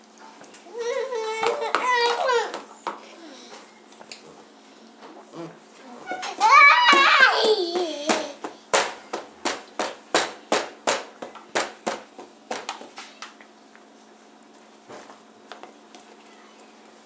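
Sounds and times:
hands slapping plastic tray: 0:06.8 - 0:12.9.

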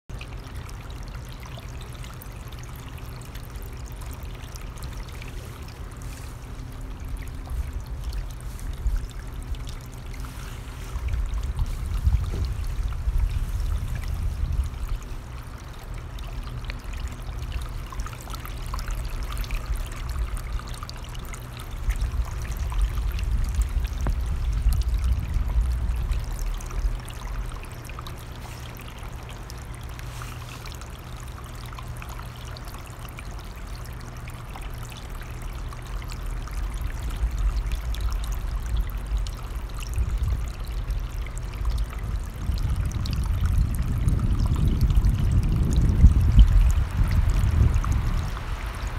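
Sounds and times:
mountain stream running: 0:00.1 - 0:48.9
wind rumbling on microphone: 0:04.6 - 0:30.6, 0:35.9 - 0:48.9.

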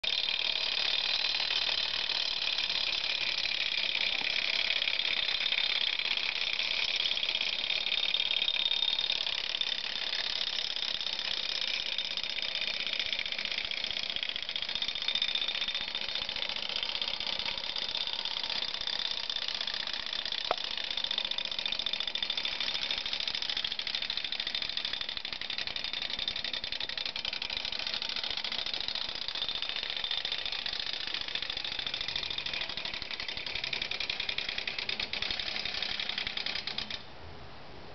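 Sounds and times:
clockwork gears whirring and rattling: 0:00.0 - 0:37.0.

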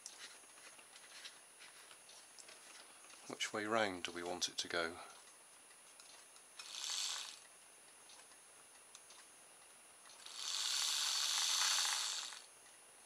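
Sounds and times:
small electric motor whirring: 0:06.6 - 0:07.5, 0:10.2 - 0:12.5.

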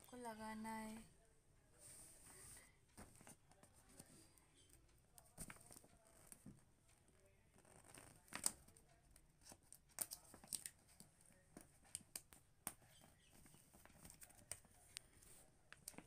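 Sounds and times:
sticker sheet crackling: 0:07.5 - 0:16.0.

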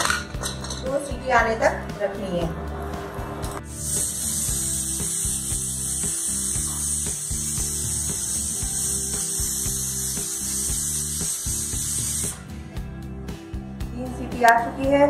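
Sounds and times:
background music with beat: 0:01.9 - 0:15.0
pressure cooker steam hissing: 0:03.7 - 0:12.4.

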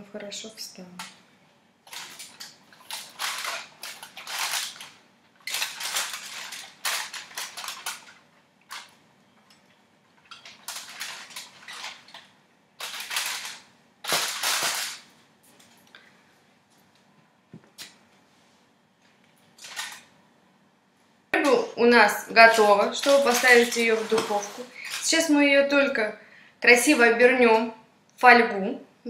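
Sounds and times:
aluminium foil crinkling: 0:01.8 - 0:15.9, 0:19.4 - 0:20.1, 0:22.4 - 0:25.4.

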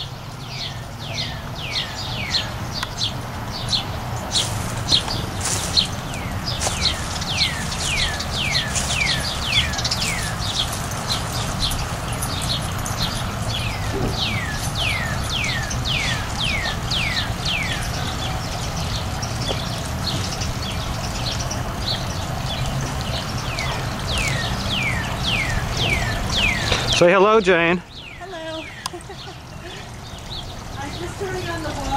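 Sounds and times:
bird whistling song: 0:03.7 - 0:10.8, 0:13.5 - 0:18.4, 0:23.4 - 0:27.0.

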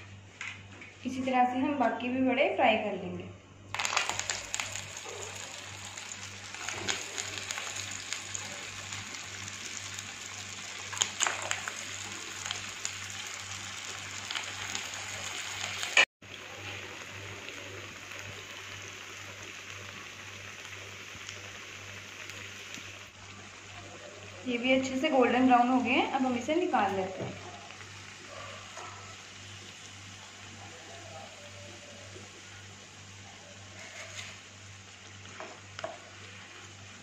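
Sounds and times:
food sizzling in hot oil: 0:03.7 - 0:37.0.

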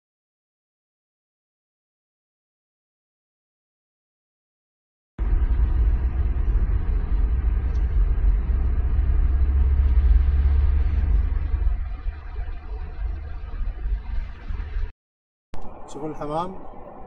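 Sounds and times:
car road and engine rumble: 0:05.2 - 0:14.9.

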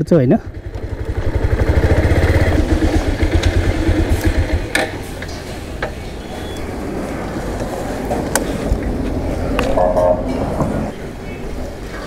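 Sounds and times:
motorcycle engine running: 0:00.4 - 0:06.5.

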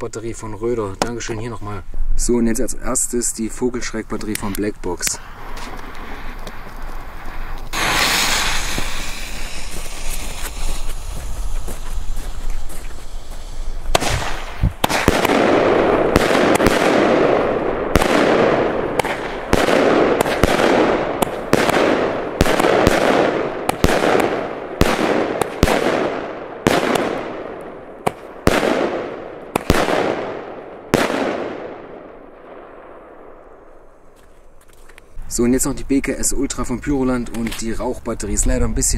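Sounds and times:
firework hiss: 0:05.0 - 0:17.0
firework battery bangs: 0:05.2 - 0:11.4, 0:13.8 - 0:32.1.

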